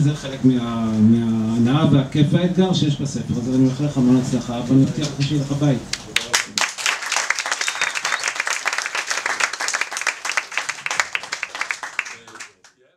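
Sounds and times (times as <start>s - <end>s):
audience applauding: 5.9s - 12.7s.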